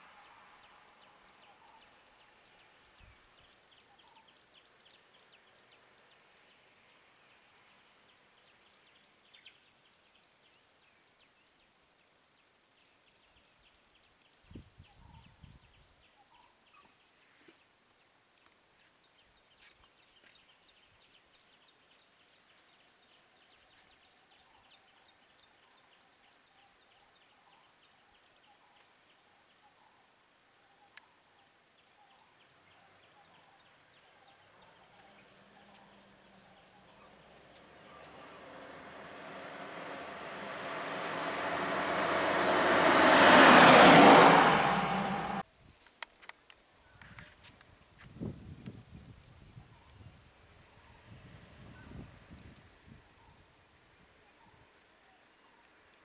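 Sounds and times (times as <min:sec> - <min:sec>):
low bumps: 0:37.4 - 0:45.4.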